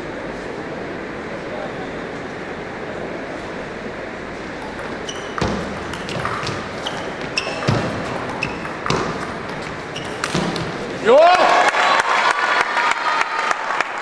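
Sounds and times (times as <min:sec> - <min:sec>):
murmur of hall: 0:00.0 - 0:14.0
table tennis ball clicking: 0:04.6 - 0:10.8.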